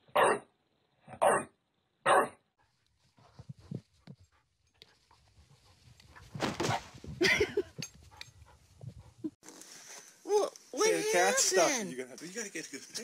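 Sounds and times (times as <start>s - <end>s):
rustling: 2.6s - 10.8s.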